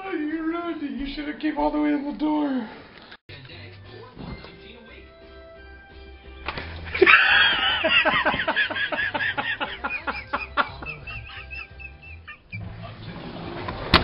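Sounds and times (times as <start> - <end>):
person laughing hard: 6.9 - 12.9.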